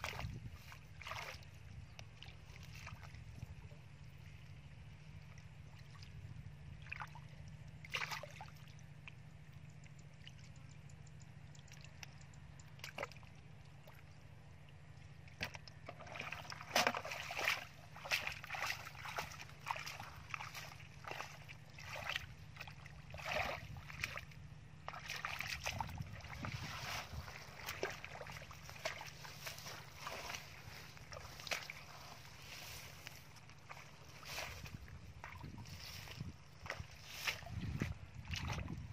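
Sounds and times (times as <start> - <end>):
hands splashing in muddy water: 0.0 - 3.1, 7.8 - 8.6, 15.4 - 38.9.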